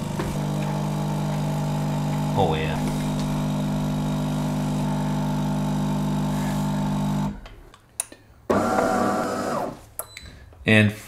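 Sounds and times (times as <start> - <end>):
coffee machine pump humming: 0.0 - 7.4
higher-pitched machine hum: 0.0 - 7.4.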